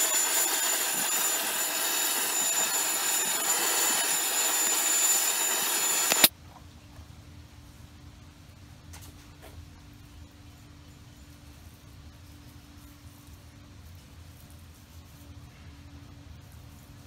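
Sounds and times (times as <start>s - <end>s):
gas torch flame hissing: 0.0s - 6.3s.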